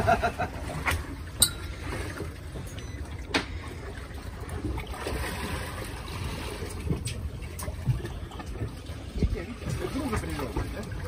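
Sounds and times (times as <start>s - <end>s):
sea noise: 0.0s - 11.0s
wind: 0.0s - 11.0s.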